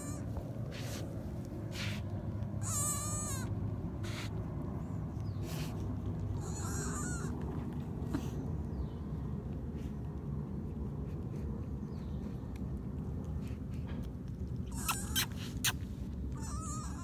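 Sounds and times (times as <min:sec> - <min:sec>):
breathy sniffs: 0:00.7 - 0:02.1, 0:04.0 - 0:04.4, 0:05.3 - 0:05.9, 0:08.1 - 0:08.5
deer fawn bleating: 0:02.6 - 0:03.5, 0:06.4 - 0:07.3.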